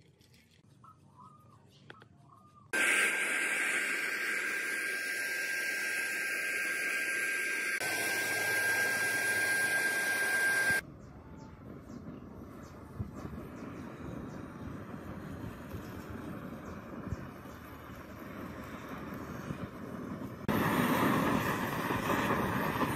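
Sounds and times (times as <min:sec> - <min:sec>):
paint spray gun hissing: 0:02.8 - 0:10.8
thin steady whistle: 0:02.8 - 0:12.1.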